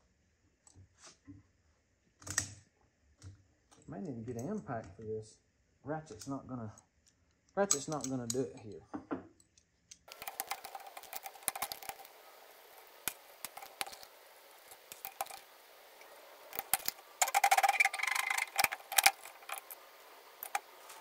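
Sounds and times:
metal clicks and clinks: 0:07.6 - 0:08.8, 0:16.5 - 0:19.8
rattling run of clicks: 0:10.1 - 0:12.2, 0:16.5 - 0:21.0.

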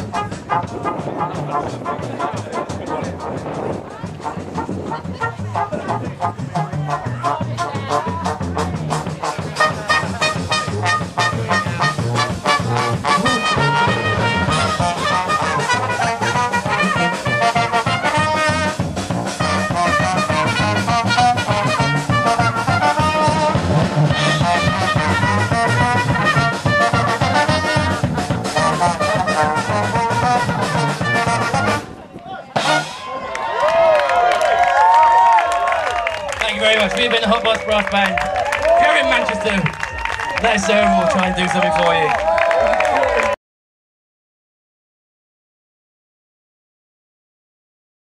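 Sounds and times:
steady beat: 0:00.0 - 0:31.8
trombone: 0:00.0 - 0:32.0, 0:32.6 - 0:33.1
trumpet: 0:00.0 - 0:33.4.

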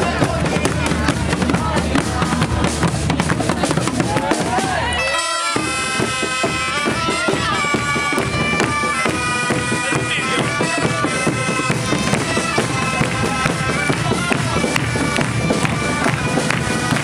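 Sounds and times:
drum beat: 0:00.0 - 0:17.0
bagpipes playing dance tune: 0:04.8 - 0:17.0
small flutes: 0:04.9 - 0:17.0.

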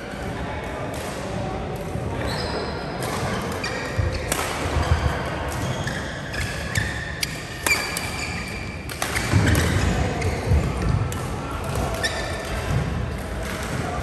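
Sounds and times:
shoes squeaking on court floor: 0:02.1 - 0:11.2, 0:11.8 - 0:12.8
racket hitting shuttlecock: 0:03.0 - 0:13.9.

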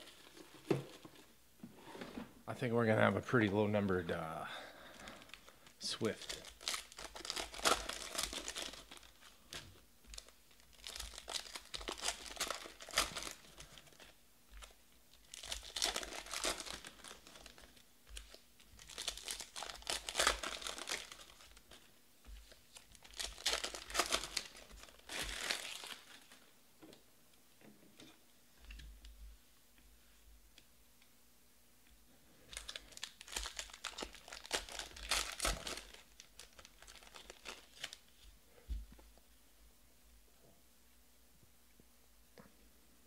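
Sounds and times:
plastic wrapper tearing and crinkling: 0:05.0 - 0:26.4, 0:32.5 - 0:38.2.

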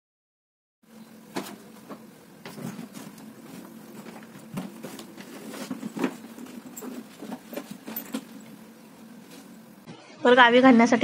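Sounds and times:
steady low hum: 0:00.8 - 0:11.0
bag rustling and knocking: 0:01.3 - 0:09.7.

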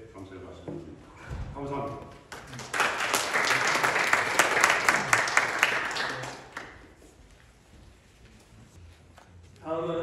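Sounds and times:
audience applauding: 0:02.3 - 0:06.9.

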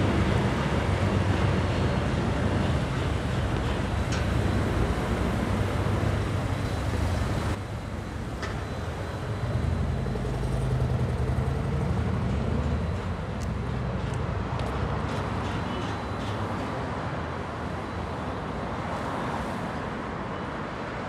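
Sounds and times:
vehicle engine humming: 0:00.0 - 0:14.0
city street traffic: 0:00.0 - 0:21.0.

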